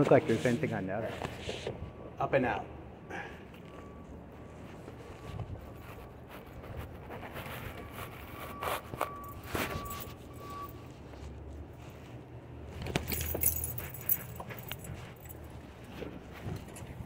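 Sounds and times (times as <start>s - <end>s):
rustling scrape: 0.0s - 1.7s, 4.5s - 12.3s
thin ringing tone: 7.7s - 10.9s.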